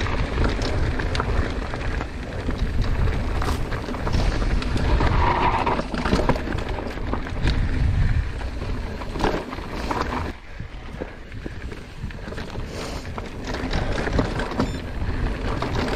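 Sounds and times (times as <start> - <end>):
tyres crunching on dirt: 0.0 - 7.6
bike rattling over rocks: 0.0 - 15.9
wind rumbling on microphone: 0.0 - 15.9.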